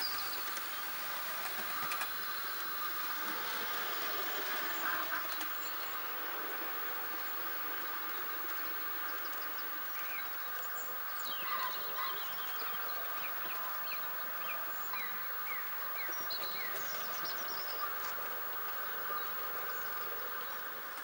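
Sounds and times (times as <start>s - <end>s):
birds chirping: 0.0s - 21.0s
model locomotive motor hum: 0.0s - 21.0s.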